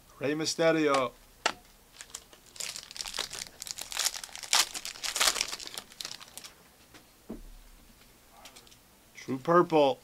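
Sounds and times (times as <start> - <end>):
foil wrapper crinkling and tearing: 1.9 - 6.5.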